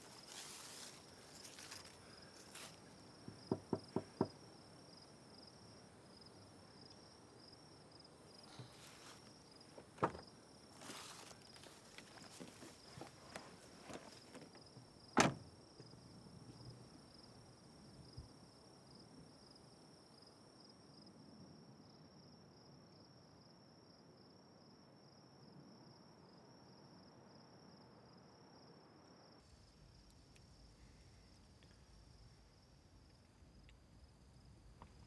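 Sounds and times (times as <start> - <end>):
soft rustles: 0.0 - 2.9, 8.5 - 14.6
crickets chirping: 0.0 - 35.0.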